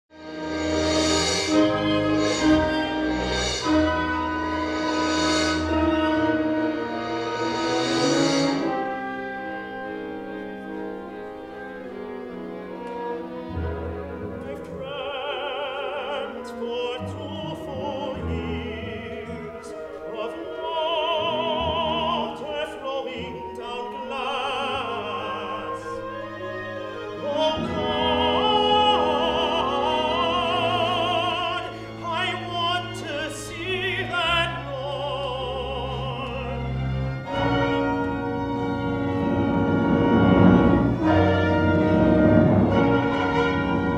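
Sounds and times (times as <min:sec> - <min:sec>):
orchestral accompaniment: 0:00.1 - 0:43.9
man singing opera with vibrato: 0:14.2 - 0:38.1
low strings holding notes: 0:36.9 - 0:43.9.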